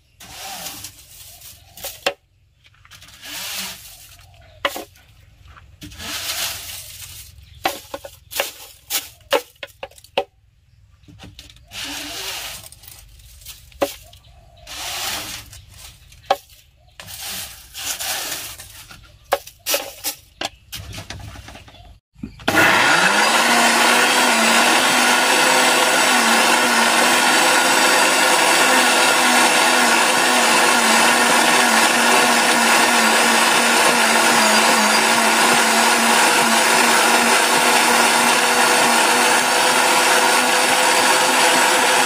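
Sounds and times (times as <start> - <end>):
dried leaves rustling: 0.2 - 2.1, 2.7 - 9.4, 11.6 - 19.0.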